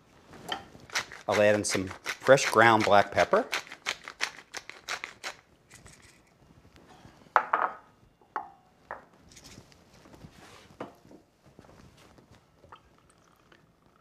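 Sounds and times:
pepper mill grinding clicks: 0.9 - 6.2.

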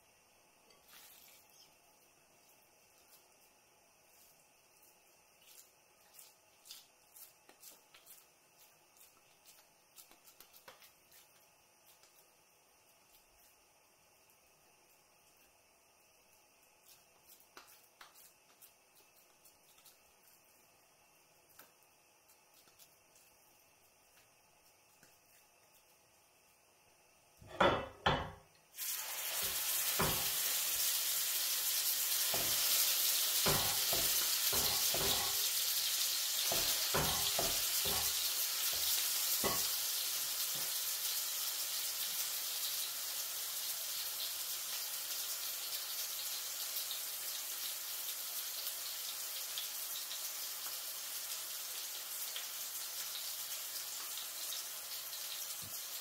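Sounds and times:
meat sizzling in a frying pan: 27.3 - 56.0.

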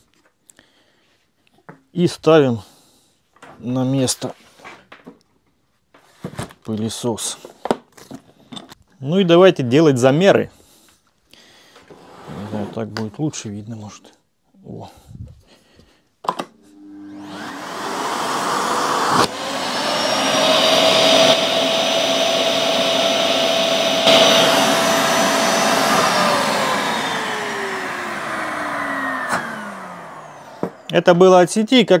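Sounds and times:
vacuum cleaner motor whine: 16.5 - 31.0.

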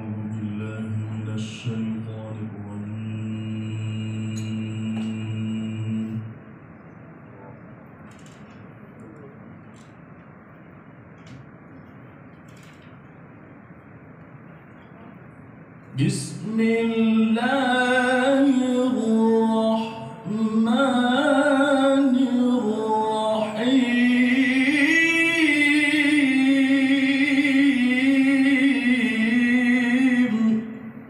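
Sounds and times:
man chanting over a loudspeaker: 0.0 - 6.4, 15.9 - 31.0.

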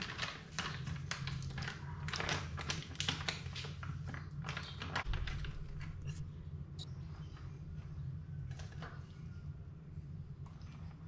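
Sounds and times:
plastic packet crinkling: 0.0 - 6.2.

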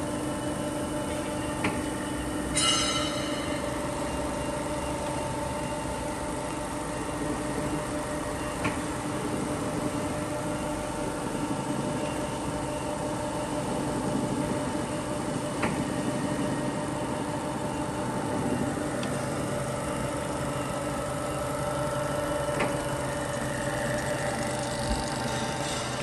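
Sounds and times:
grinder motor hum: 20.2 - 26.0.

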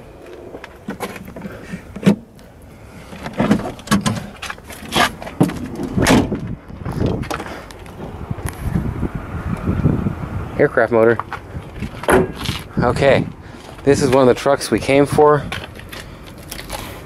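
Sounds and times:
car hood metal clunks: 3.3 - 6.5, 12.0 - 12.6.

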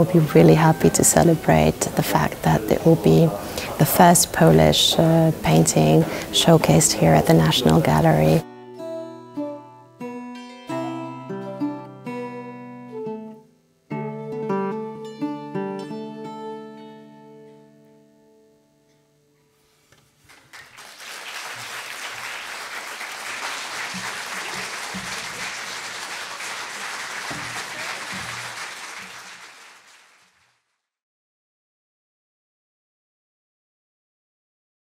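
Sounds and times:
acoustic guitar chord ringing: 8.4 - 19.3
audience applause: 20.3 - 30.6.

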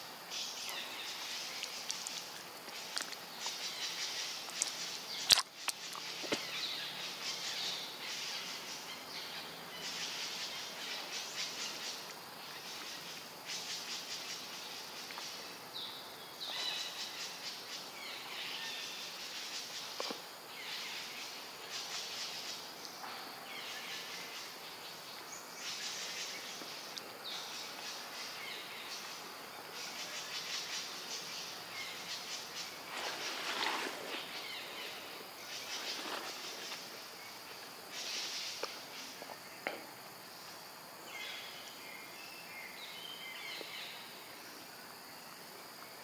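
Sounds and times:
insects buzzing: 0.0 - 46.0.

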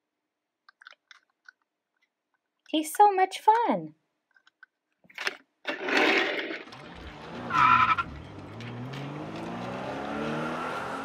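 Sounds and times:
engine revving: 6.0 - 11.0
tire squeal: 6.9 - 8.3.

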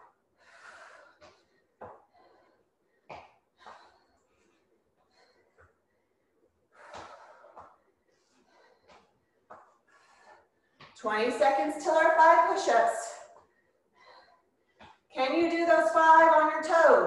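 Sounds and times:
woman breathing hard: 0.0 - 11.0, 13.2 - 15.1.

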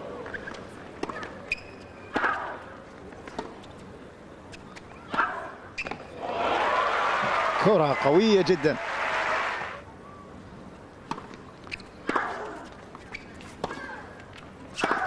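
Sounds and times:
tennis ball bouncing: 0.4 - 2.5, 3.2 - 3.7, 11.0 - 15.0
crowd applause: 6.2 - 9.8.

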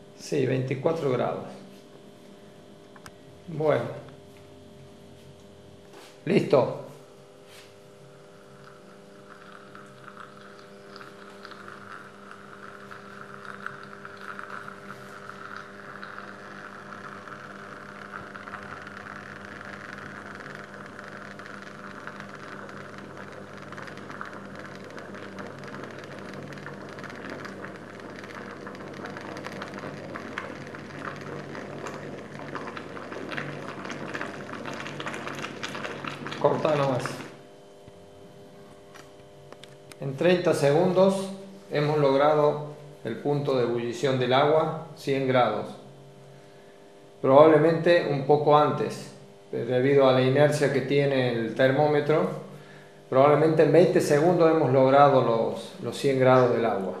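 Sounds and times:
electrical hum: 0.0 - 57.0
water bubbling and crackling: 7.9 - 38.2, 53.7 - 57.0.

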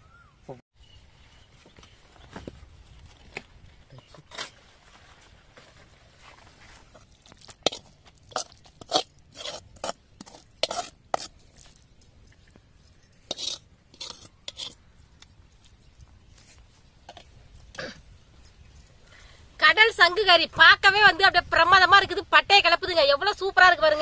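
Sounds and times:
crisp scraping and crunching strokes: 1.9 - 11.8.

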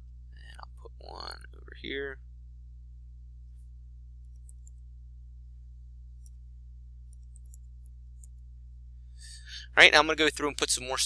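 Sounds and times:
steady low hum: 0.0 - 11.0
mouse clicks: 4.3 - 4.8, 7.1 - 8.4.

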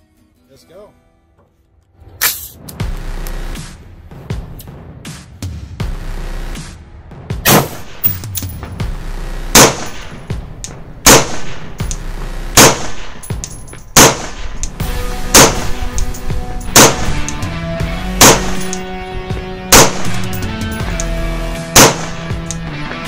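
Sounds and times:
rifle gunshots: 7.4 - 8.3, 9.5 - 10.3, 11.0 - 11.9, 12.5 - 13.3, 13.9 - 14.6, 15.3 - 16.1, 16.7 - 17.4, 18.1 - 19.0, 19.7 - 20.8, 21.7 - 22.4.

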